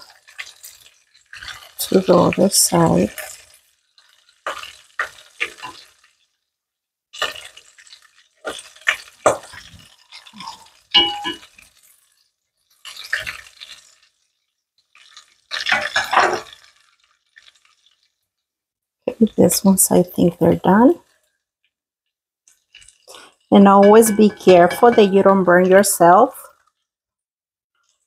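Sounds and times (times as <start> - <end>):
tortillas sizzling in hot oil: 0.0 - 19.4, 20.8 - 28.0
metal tongs clinking on pot: 10.4 - 11.6, 15.6 - 16.6, 23.1 - 26.3.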